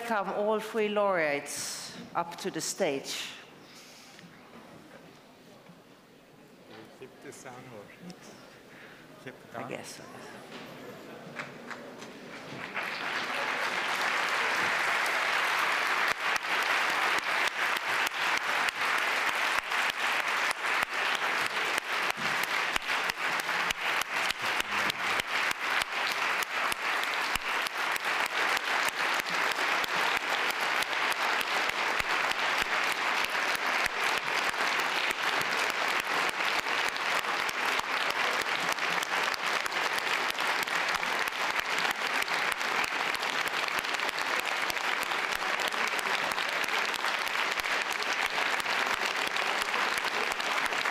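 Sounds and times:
large audience applauding: 11.1 - 50.9.

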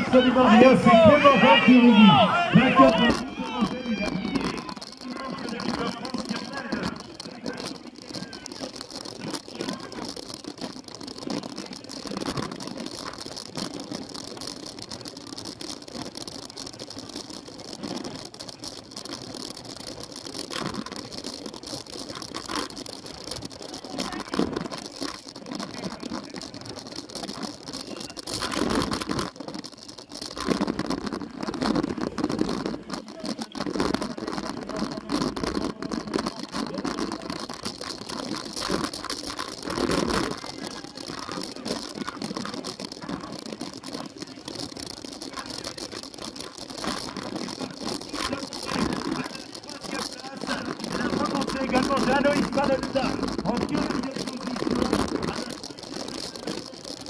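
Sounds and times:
bike rattling over rough dirt: 0.0 - 57.0.

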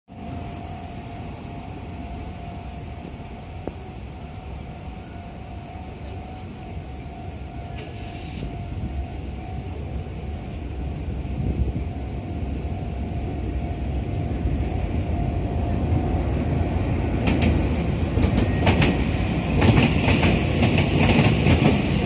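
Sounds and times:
brief hiss: 7.8 - 8.5.

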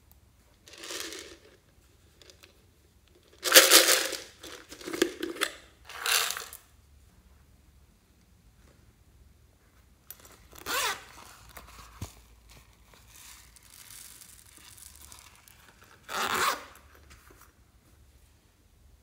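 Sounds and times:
zipper rasping: 10.6 - 11.5, 16.0 - 16.8.

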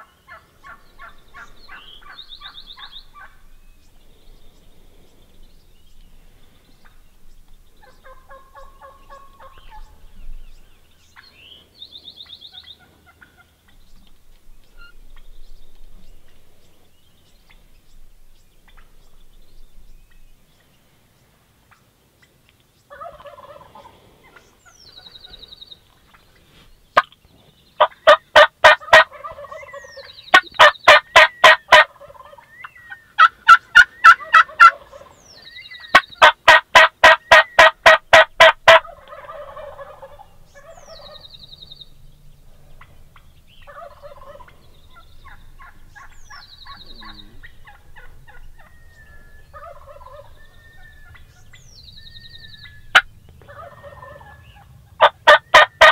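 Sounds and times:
turkeys gobbling: 0.0 - 3.6, 7.8 - 10.1, 12.2 - 14.1, 18.7 - 18.9, 22.9 - 26.2, 27.0 - 27.2, 27.8 - 41.4, 42.5 - 55.9
quieter turkey calls: 0.0 - 17.8, 18.6 - 19.2, 21.3 - 27.2, 27.8 - 55.9.

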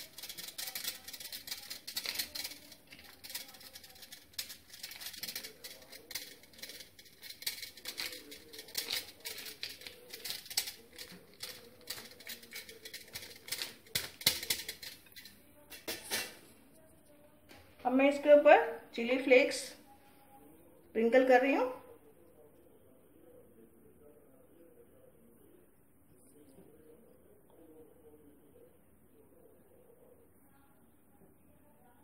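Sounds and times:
cheese grating: 0.0 - 16.4.

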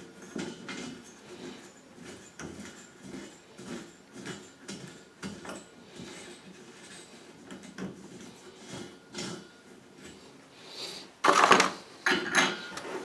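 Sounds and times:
metal clicks and scrapes: 0.0 - 10.2.

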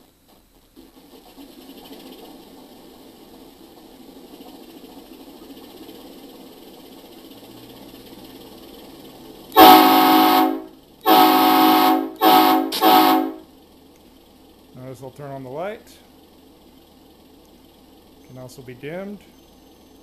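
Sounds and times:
diesel locomotive engine idling: 0.0 - 20.0
locomotive air horn blasts: 9.5 - 13.5.

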